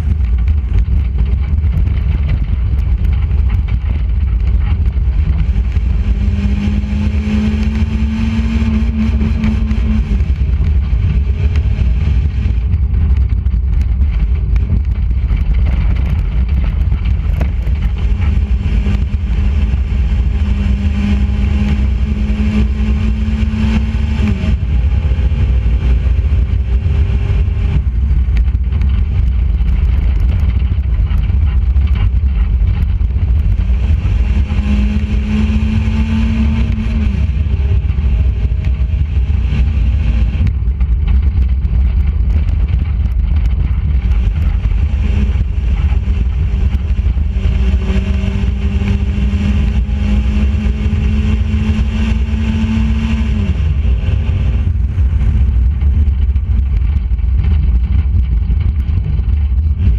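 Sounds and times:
race car engine running hard: 0:00.0 - 0:59.9
wind rumble on microphone: 0:00.0 - 0:59.9.

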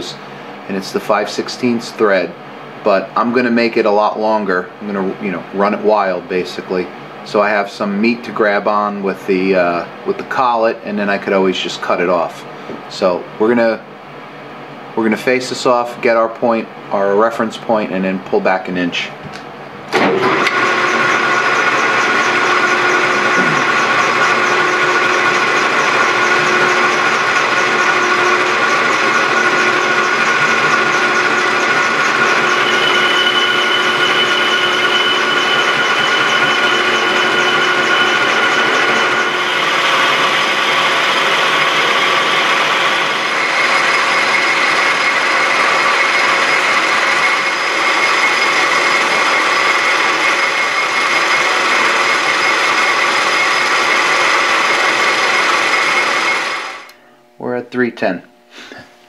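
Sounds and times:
lathe running: 0:19.9 - 0:57.3
cutting tool cutting steel: 0:20.3 - 0:57.0.

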